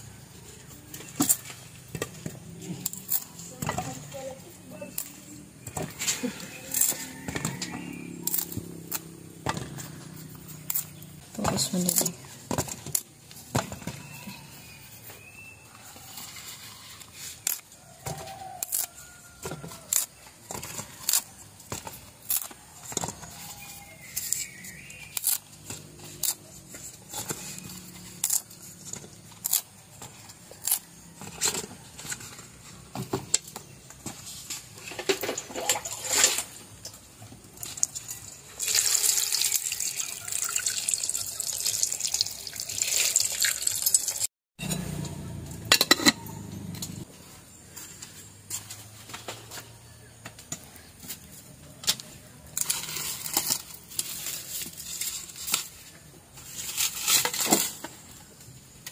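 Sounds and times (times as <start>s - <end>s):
water pouring into pot: 38.5s - 44.3s.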